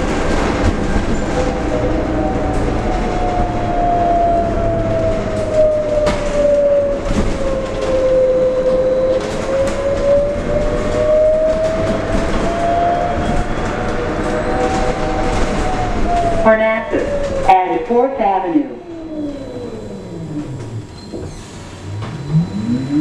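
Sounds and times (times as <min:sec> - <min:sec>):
low road rumble: 0:00.0 - 0:23.0
electric motor whine: 0:21.9 - 0:23.0.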